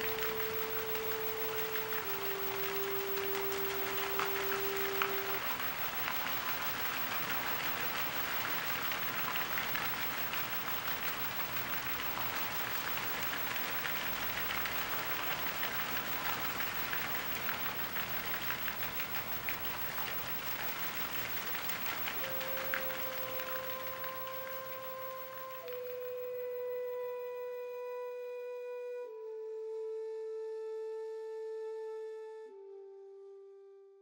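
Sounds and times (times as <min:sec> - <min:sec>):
birds wingbeats and splashing: 0:00.0 - 0:26.1.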